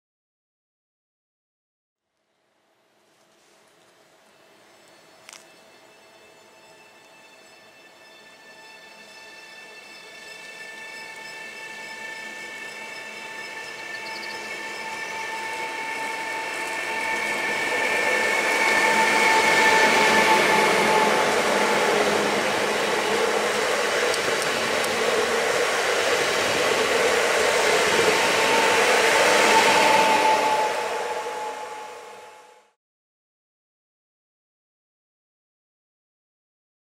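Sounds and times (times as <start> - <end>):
train wheels rumbling on rails: 3.2 - 32.7.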